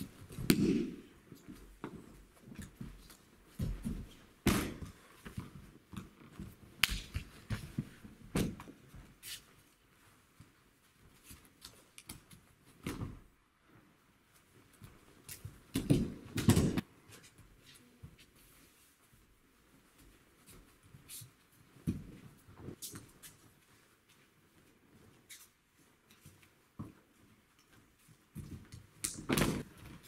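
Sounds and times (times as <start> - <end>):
bare feet stamping and shuffling: 0.0 - 13.4, 14.3 - 30.0
bodies thudding onto mats: 2.8 - 5.6, 29.2 - 30.0.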